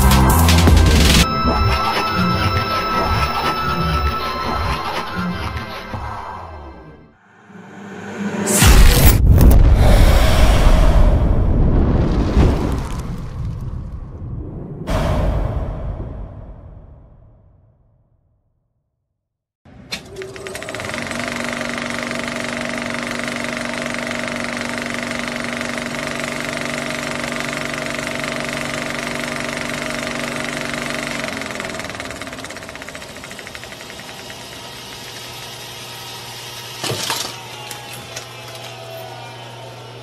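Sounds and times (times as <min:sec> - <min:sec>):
rapid mechanical clatter: 0:19.8 - 0:38.8.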